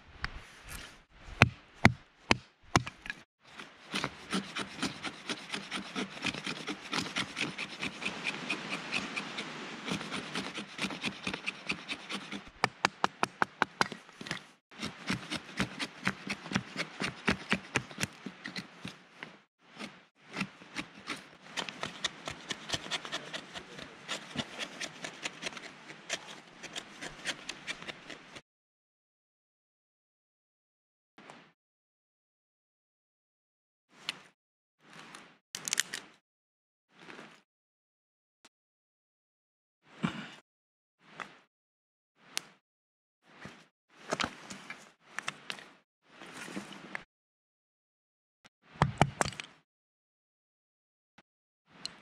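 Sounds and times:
knife scraping wood: 2.3s - 28.4s.

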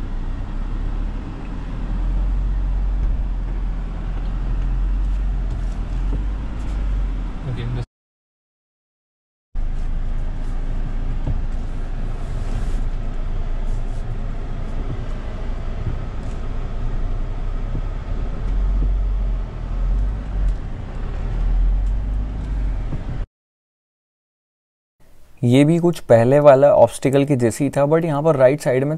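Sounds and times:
vehicle engine and drivetrain rumble: 0.0s - 7.9s, 9.6s - 23.3s.

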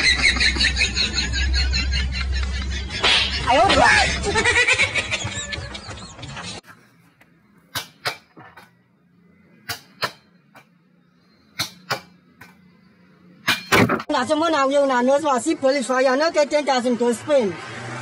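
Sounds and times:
ball being struck: 7.7s - 8.7s, 9.6s - 10.7s, 11.6s - 12.6s.

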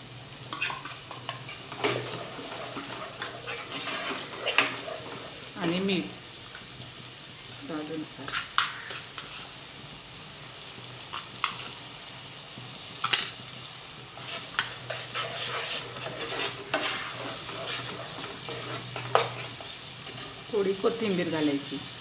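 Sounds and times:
paste sizzling: 0.0s - 22.0s
spoon scraping pot: 0.5s - 5.8s, 14.2s - 20.5s.

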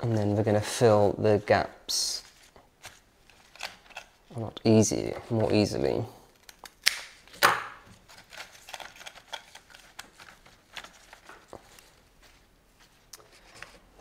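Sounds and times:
stems clicking and rustling: 2.2s - 4.4s, 6.4s - 13.8s.

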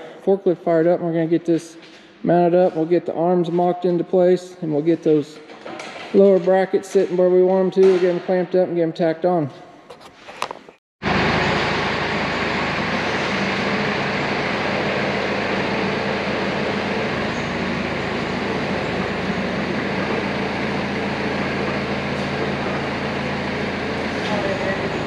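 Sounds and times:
forklift engine humming: 11.0s - 25.0s.

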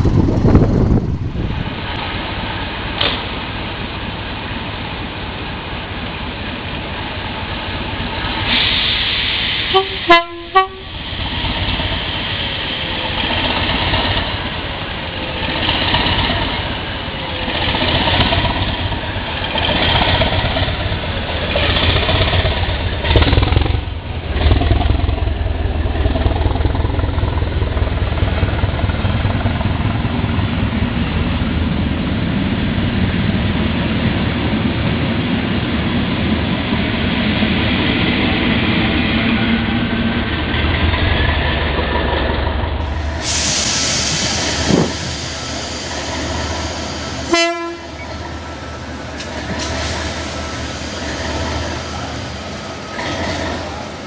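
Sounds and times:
train diesel engine running: 0.0s - 54.0s
train wheels rumbling: 0.0s - 54.0s
train horn blasts: 9.7s - 11.0s, 47.2s - 48.1s.

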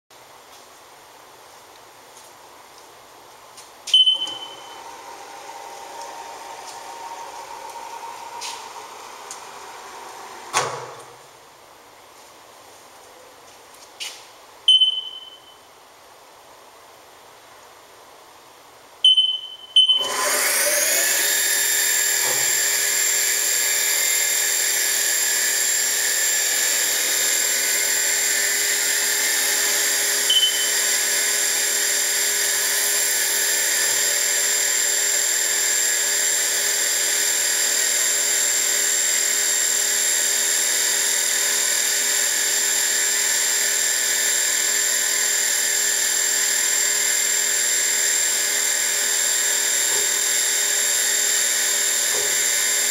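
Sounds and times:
short control beeps: 3.9s - 4.8s, 14.7s - 15.6s, 19.0s - 20.2s, 30.3s - 30.8s
mill spindle whine: 3.9s - 11.2s, 19.0s - 52.9s.

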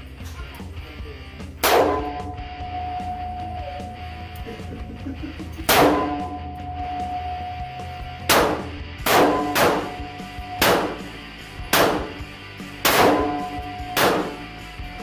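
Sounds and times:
revolver gunshots with echo: 1.6s - 2.2s, 5.6s - 6.4s, 8.2s - 14.5s.

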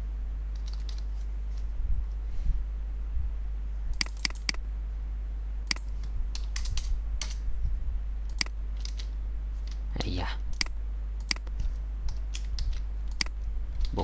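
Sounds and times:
steady low hum: 0.0s - 14.0s
computer keyboard clicks: 0.5s - 1.1s, 4.0s - 4.6s, 8.3s - 9.8s, 10.5s - 14.0s
mouse clicks: 4.0s - 4.6s, 8.3s - 9.1s.

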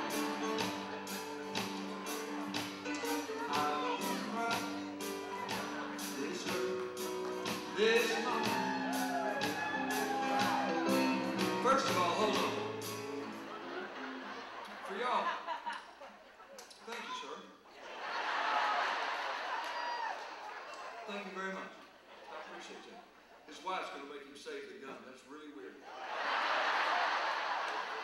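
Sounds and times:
acoustic guitars strumming: 0.0s - 14.4s
man singing: 2.9s - 6.7s, 7.7s - 9.0s, 10.3s - 12.8s.

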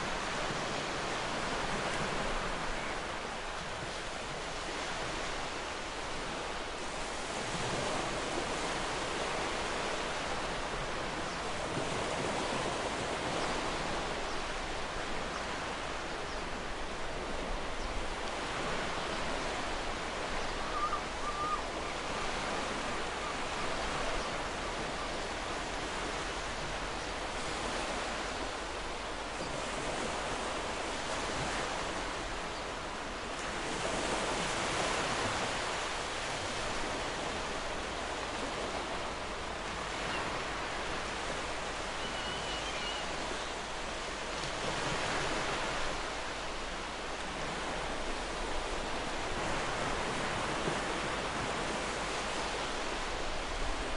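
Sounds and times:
ocean waves breaking on shore: 0.0s - 53.9s
distant gull cry: 20.6s - 21.8s.

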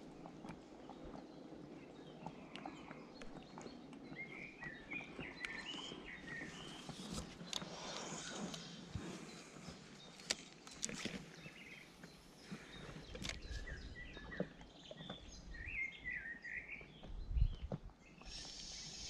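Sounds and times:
wind rumbling on microphone: 10.8s - 19.0s.

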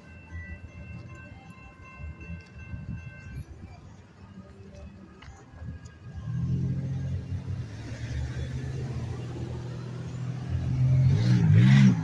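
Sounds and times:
car engines idling: 0.0s - 12.0s
car accelerating: 6.0s - 12.0s.

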